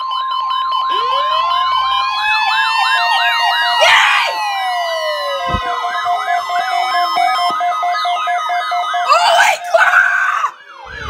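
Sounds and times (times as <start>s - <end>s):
pulsing low beep: 0.0s - 2.7s, 5.1s - 8.4s
fast warbling siren: 0.0s - 11.0s
steady high alarm tone: 0.0s - 11.0s.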